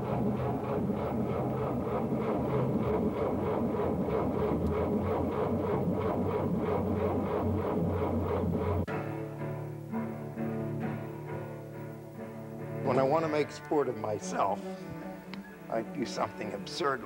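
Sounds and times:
fast pulsing beat: 0.0 - 8.9
low drone: 0.0 - 11.1
film score music: 0.0 - 17.0.

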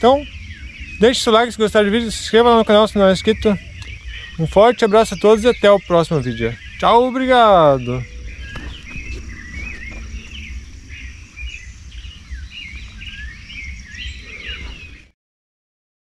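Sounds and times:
low rumble and hiss: 0.0 - 15.0
birds chirping and warbling: 0.0 - 15.2.

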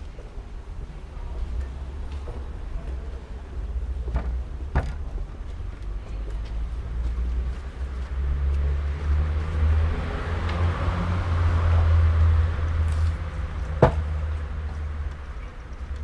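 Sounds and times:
street traffic rumble: 0.0 - 16.0
vehicle passing: 5.5 - 15.4.

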